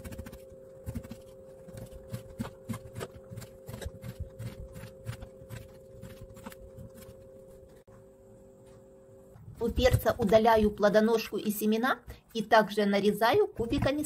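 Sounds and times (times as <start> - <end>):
knife chopping on wooden board: 0.0 - 7.1.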